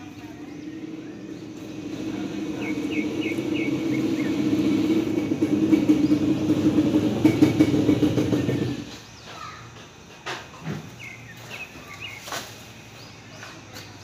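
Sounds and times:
vehicle engine running: 0.0s - 9.2s.

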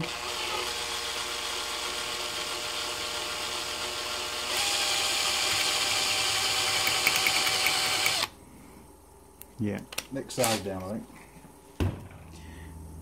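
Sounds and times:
power drill whining: 0.0s - 8.3s.

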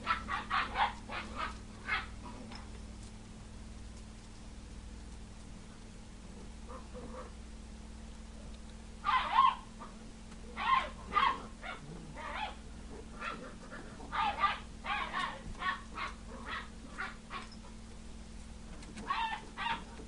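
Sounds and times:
puppy yapping: 0.0s - 2.4s, 9.0s - 10.0s, 10.6s - 17.8s, 19.0s - 20.0s.

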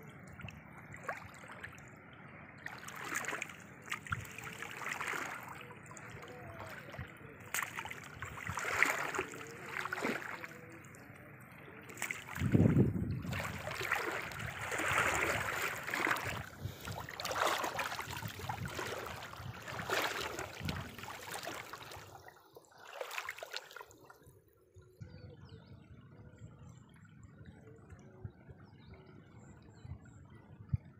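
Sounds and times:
water splashing and dripping: 2.6s - 10.6s, 11.9s - 24.1s.

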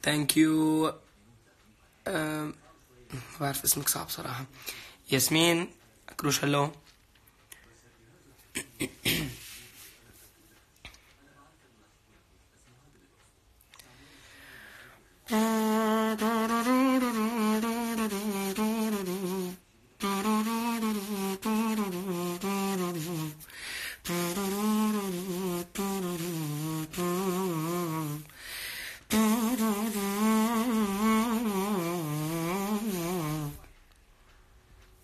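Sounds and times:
man humming melody: 15.3s - 23.4s, 24.0s - 28.3s, 29.1s - 33.6s.

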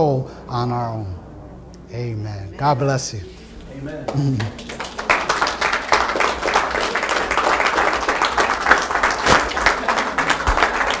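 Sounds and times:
audience applauding: 4.1s - 11.0s.

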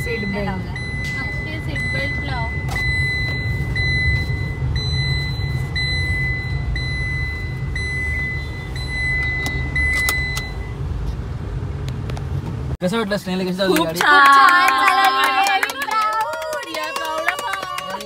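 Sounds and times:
seat belt warning beeps: 0.0s - 10.8s
car engine and road rumble: 0.0s - 18.0s.

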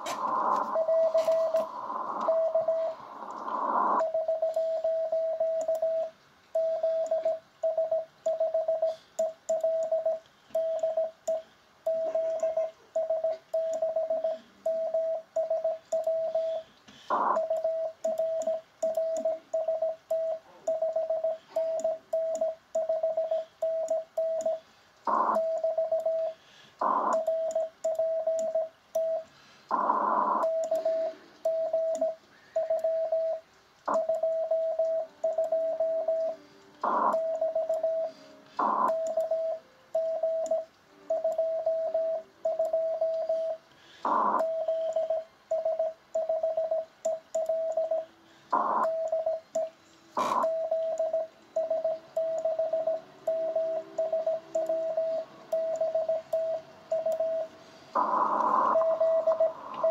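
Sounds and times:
morse code tone: 0.0s - 3.0s, 3.6s - 59.9s
short bursts of radio noise: 0.0s - 6.2s, 16.0s - 22.1s, 24.5s - 28.2s, 29.2s - 34.3s, 36.3s - 39.6s, 43.0s - 45.3s, 47.9s - 51.0s, 57.4s - 59.9s.

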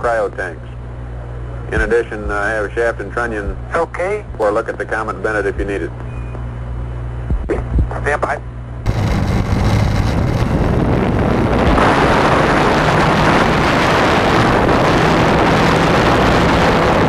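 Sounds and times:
wind rushing over microphone: 8.8s - 17.0s
model plane engine running hard: 8.9s - 17.0s.

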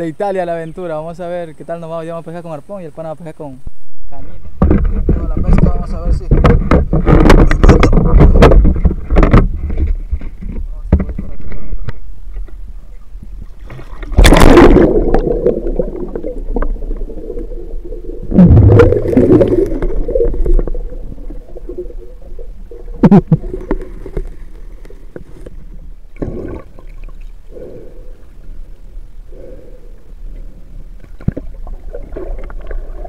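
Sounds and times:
water splashing and gurgling: 13.3s - 27.7s, 31.0s - 33.0s
loud splashes: 13.6s - 16.4s, 18.3s - 20.7s
muffled underwater bubbling: 13.7s - 24.2s.

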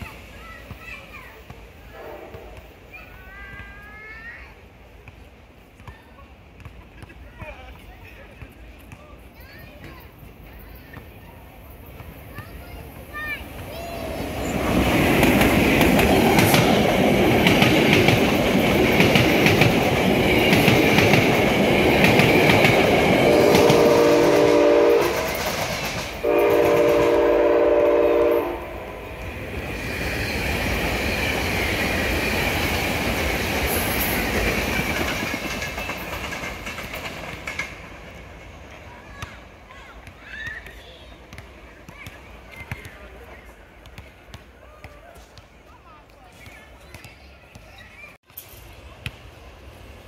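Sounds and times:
train passing quietly: 0.0s - 6.5s, 8.1s - 44.3s, 48.4s - 50.0s
train horn blasts: 1.9s - 2.6s, 23.2s - 25.4s, 26.2s - 29.1s
train wheels clattering on track: 12.0s - 28.0s, 29.2s - 39.8s.

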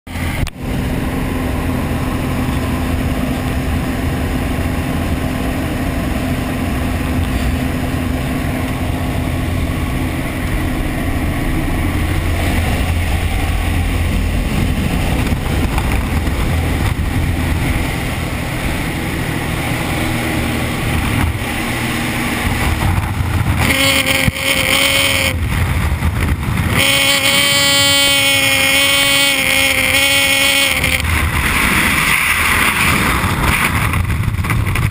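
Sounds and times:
plane engine and propeller: 0.1s - 34.9s
wind rushing: 0.2s - 34.9s
high-pitched tone: 23.6s - 25.4s, 26.7s - 31.1s.

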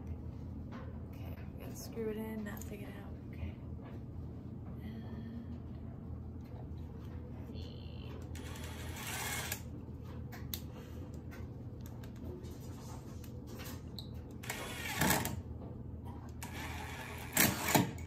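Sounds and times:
cordless drill whirring: 8.4s - 9.6s, 14.4s - 15.3s.

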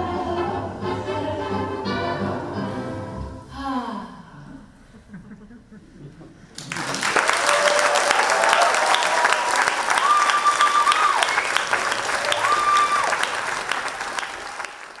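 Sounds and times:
audience applauding: 6.5s - 15.0s
long cheers: 7.0s - 15.0s.

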